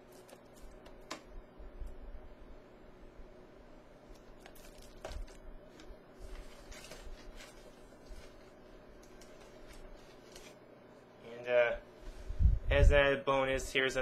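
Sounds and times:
low room hum: 0.0 - 14.0
rustling in cardboard box: 4.4 - 10.6.

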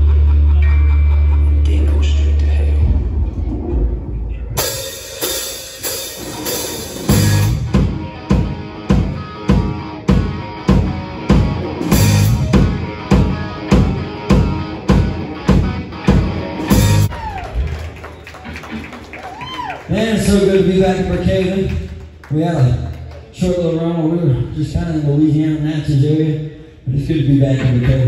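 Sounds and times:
live band playing: 3.8 - 19.2
cymbals: 4.6 - 7.9.

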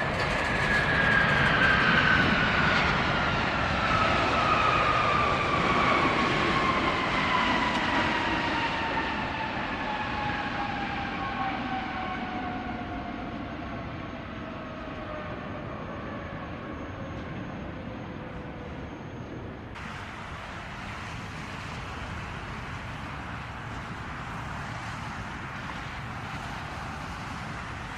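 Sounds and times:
jet airliner rush: 0.0 - 11.1, 19.8 - 27.9
jet engine whine: 0.0 - 27.9.

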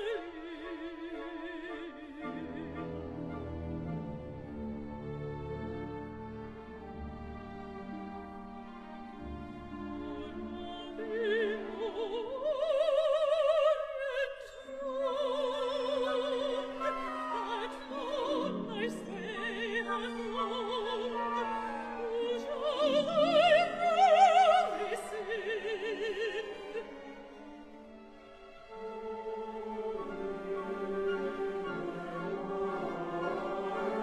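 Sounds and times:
woman singing operatically: 10.1 - 27.4.

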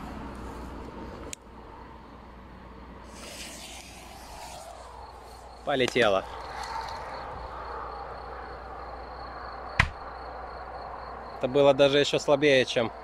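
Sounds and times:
firecracker fuse hissing: 3.0 - 5.4.

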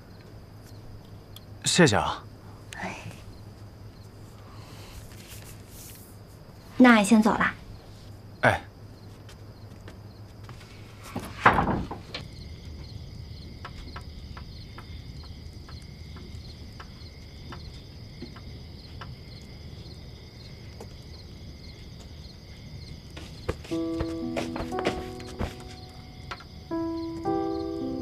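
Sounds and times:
crickets chirping: 0.0 - 28.0
wood fire crackling: 10.4 - 23.2.

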